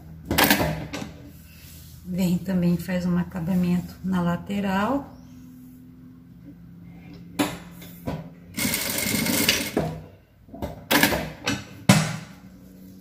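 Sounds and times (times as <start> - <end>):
low steady hum: 0.0 - 13.0
sewing machine stitching: 8.6 - 9.9.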